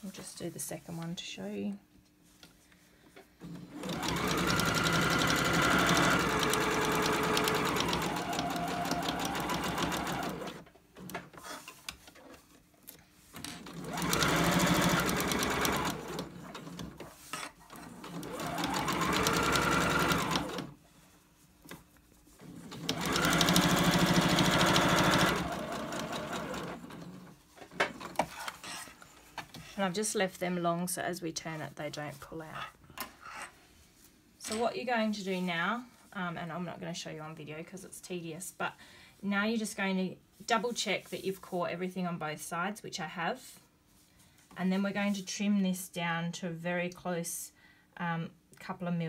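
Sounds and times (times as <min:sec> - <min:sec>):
electric sewing machine stitching: 0:03.4 - 0:10.6, 0:13.4 - 0:17.0, 0:17.7 - 0:20.7, 0:22.4 - 0:27.3.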